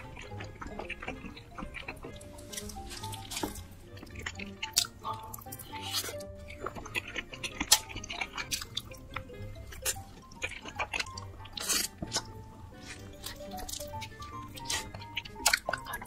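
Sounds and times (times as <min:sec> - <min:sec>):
soft background music: 0:00.0 - 0:16.0
wet chewing and mouth clicks: 0:00.0 - 0:16.0.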